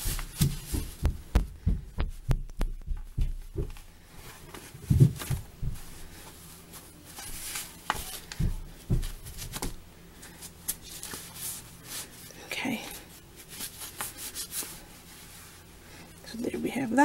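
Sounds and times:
fabric strips rustling: 0.0 - 1.3, 2.9 - 16.2
soft handling thumps: 0.0 - 9.8.

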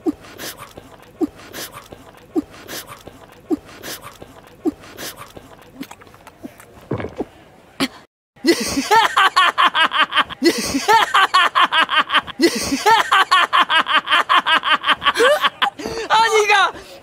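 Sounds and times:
faint chewing clicks: 0.0 - 7.2.

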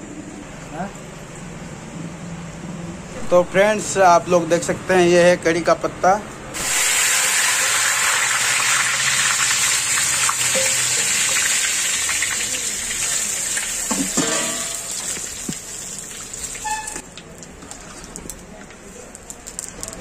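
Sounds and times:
leaves sizzling in hot oil: 6.6 - 18.2.

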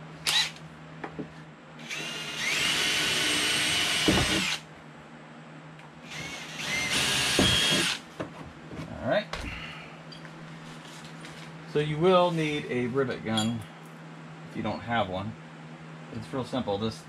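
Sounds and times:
cordless drill whining: 1.8 - 4.6, 6.1 - 8.0.

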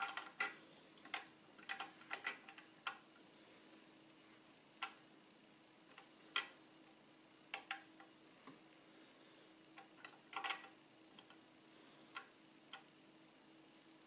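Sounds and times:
metallic clicks of sewing machine parts: 0.0 - 3.0, 9.8 - 11.4.

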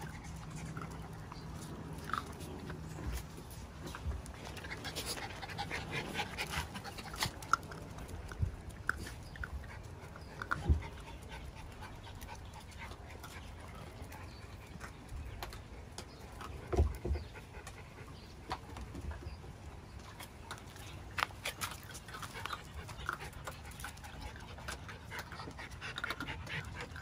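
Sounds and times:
dog panting: 0.0 - 8.0, 8.9 - 18.8, 21.0 - 27.0
puppies eating dry kibble: 0.0 - 27.0.

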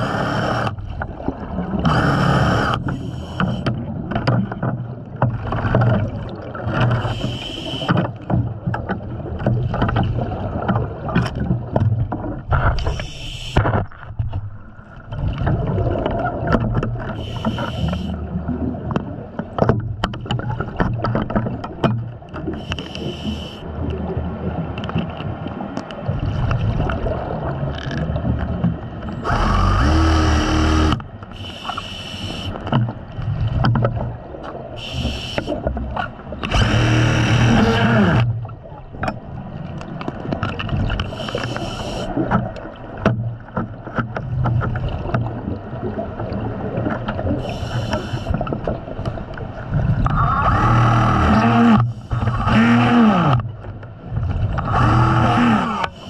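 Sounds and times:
continuous underwater rumble: 0.0 - 56.0
breathing regulator hissing: 7.0 - 7.9, 12.8 - 13.6, 17.2 - 18.1, 22.6 - 23.6, 29.3 - 32.6, 34.8 - 35.5, 41.1 - 42.1, 47.4 - 48.3
exhaled bubbles rushing: 14.9 - 17.1.

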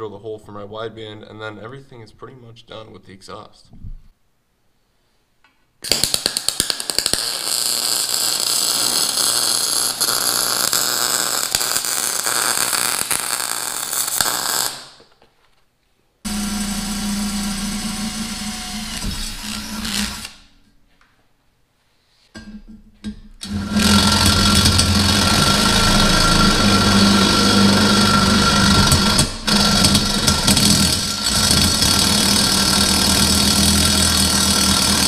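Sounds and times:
welder arc crackling: 5.8 - 15.1, 23.4 - 35.0
cordless drill humming: 16.3 - 20.4, 23.4 - 35.0.

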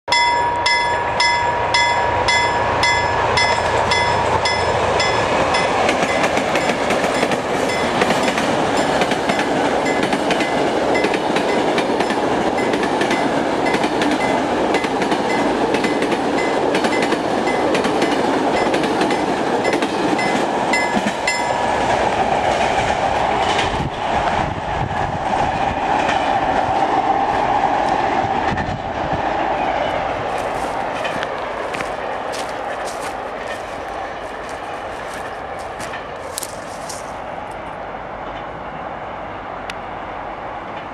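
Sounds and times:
level crossing warning bell: 0.1 - 21.6
train wheels clacking on rails: 0.1 - 24.5
freight train rumbling past: 0.1 - 40.9.

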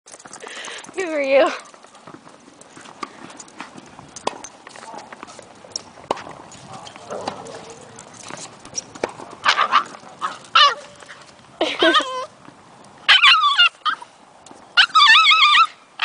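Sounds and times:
puppy yipping and howling: 10.5 - 11.0, 13.1 - 14.0, 14.8 - 15.8.

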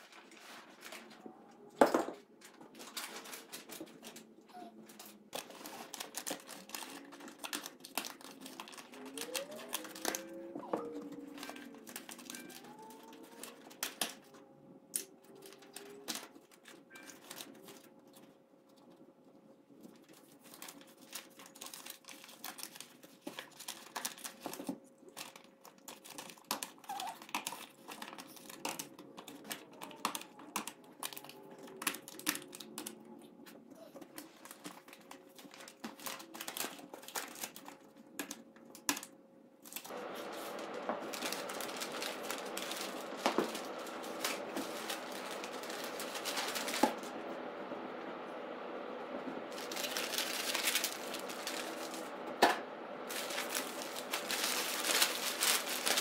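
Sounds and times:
large paper sheet rustling: 0.0 - 1.7, 2.4 - 14.3, 39.8 - 48.2, 49.3 - 56.0
paper crinkling and crumpling: 0.0 - 14.5, 15.2 - 48.6, 49.4 - 56.0.

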